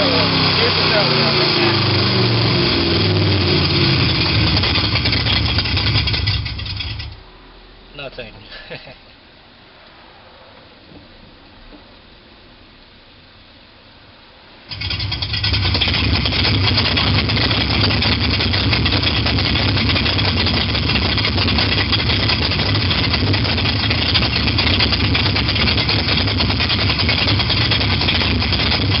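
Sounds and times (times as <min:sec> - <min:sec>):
simulated sports car engine idling: 0:00.0 - 0:07.9, 0:14.7 - 0:29.0.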